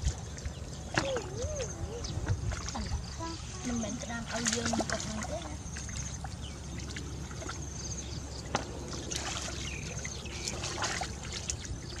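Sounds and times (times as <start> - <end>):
steady low rumble: 0.0 - 12.0
hands splashing in muddy water: 8.5 - 12.0.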